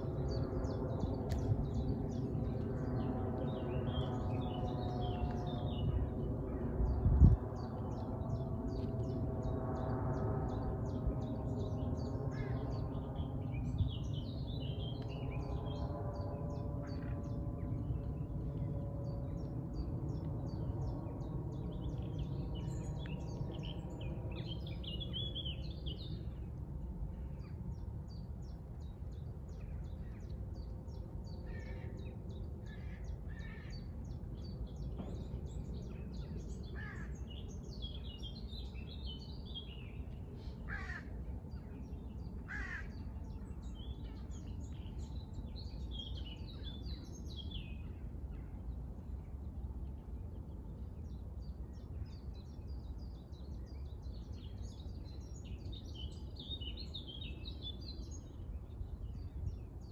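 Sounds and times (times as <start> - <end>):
birds chirping and calling: 35.7 - 41.7, 42.4 - 43.1
harsh bird calls: 40.6 - 41.2, 42.4 - 43.0.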